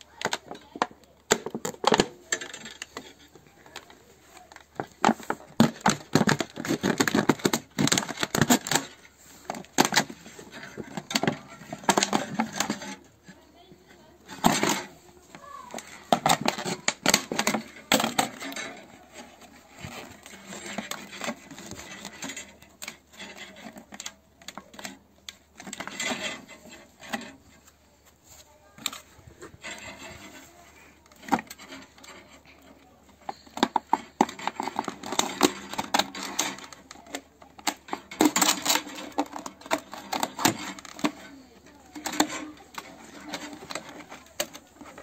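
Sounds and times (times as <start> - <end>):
plastic bottle crinkling: 0.0 - 45.0.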